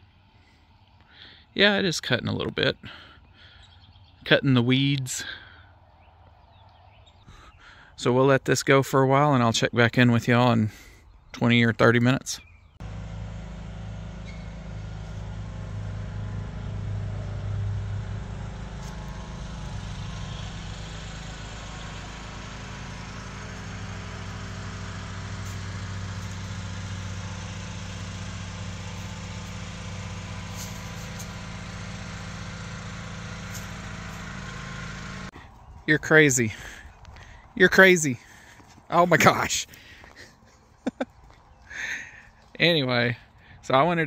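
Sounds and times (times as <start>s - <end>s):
low mechanical hum: 12.6s - 43.7s.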